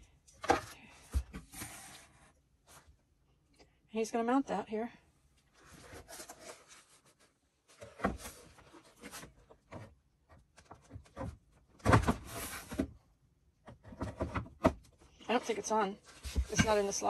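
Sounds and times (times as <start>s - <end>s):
plastic monitor knocking and scraping: 13.6s - 15.0s, 16.1s - 17.0s.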